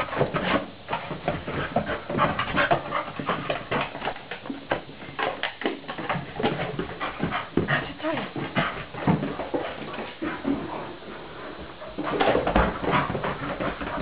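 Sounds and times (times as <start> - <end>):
dog panting and whining: 1.5 - 4.0, 6.4 - 10.8.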